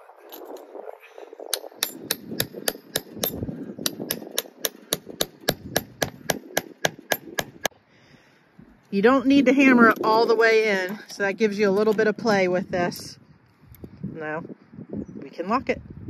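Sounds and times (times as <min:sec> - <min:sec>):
hammer striking fence staple: 0:01.6 - 0:07.7.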